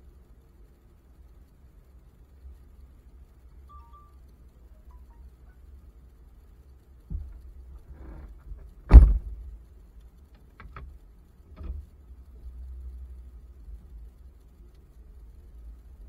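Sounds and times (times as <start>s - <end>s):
heavy thump on tow truck: 8.9s - 9.4s.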